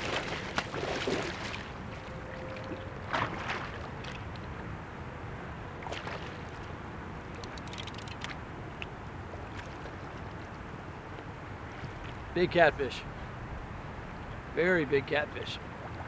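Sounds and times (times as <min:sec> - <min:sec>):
wind and water noise: 0:00.0 - 0:16.0
sharp clicks: 0:07.4 - 0:08.4.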